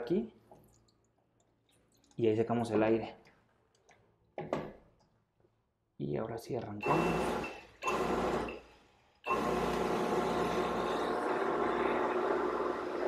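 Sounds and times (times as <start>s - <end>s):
electric water pump running: 6.8s - 8.6s, 9.3s - 13.0s.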